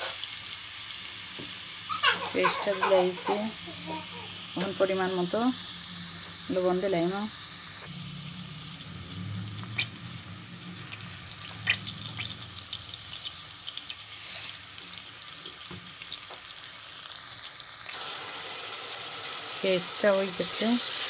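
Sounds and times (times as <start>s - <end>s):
onions sizzling in oil: 0.0s - 21.0s
low hum: 3.6s - 13.7s.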